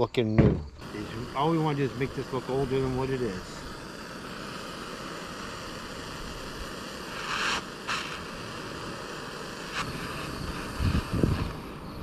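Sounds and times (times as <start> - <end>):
wind rushing over microphone: 9.7 - 12.0.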